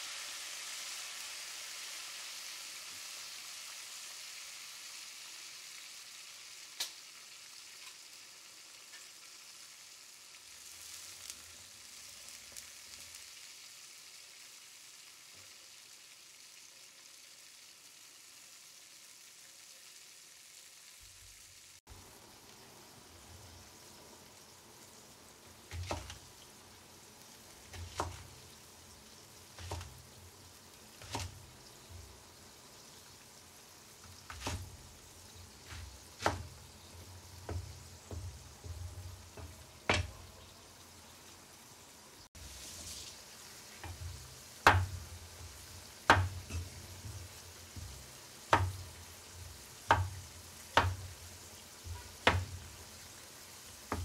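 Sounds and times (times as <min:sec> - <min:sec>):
broth sizzling and bubbling: 0:00.0 - 0:54.0
cleaver chopping on wooden board: 0:29.6 - 0:30.0, 0:35.7 - 0:36.6, 0:39.4 - 0:40.2, 0:44.6 - 0:45.0, 0:46.0 - 0:47.2, 0:47.8 - 0:48.8, 0:49.9 - 0:50.2, 0:50.8 - 0:51.1, 0:51.9 - 0:52.6.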